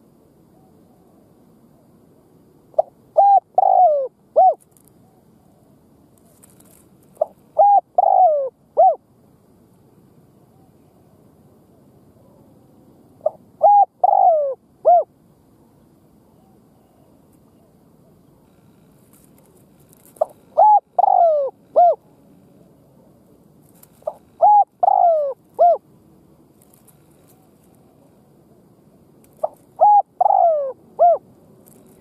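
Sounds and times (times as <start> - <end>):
dove cooing: 2.7 - 9.0, 13.2 - 15.1, 16.3 - 25.8, 26.6 - 32.0.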